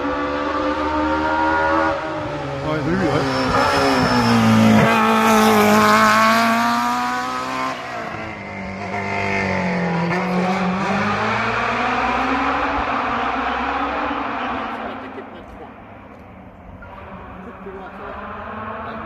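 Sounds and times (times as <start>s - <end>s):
rally car engine at high revs: 0.0s - 19.0s.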